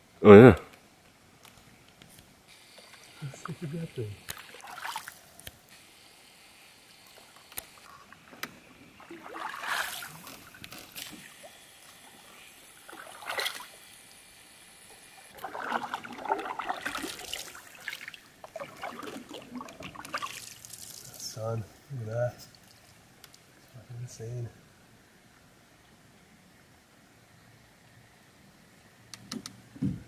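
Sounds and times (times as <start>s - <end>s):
canoe paddle swishing water: 4.3s - 5.2s, 8.0s - 12.2s, 12.8s - 13.8s, 15.3s - 21.1s.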